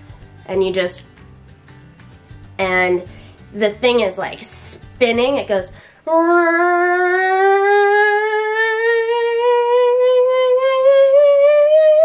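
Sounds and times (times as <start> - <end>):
woman humming rising tone: 6.1 - 12.0.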